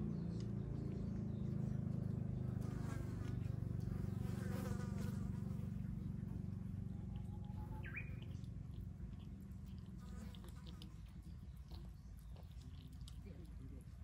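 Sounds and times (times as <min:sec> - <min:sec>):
fly buzzing: 0:02.6 - 0:05.9.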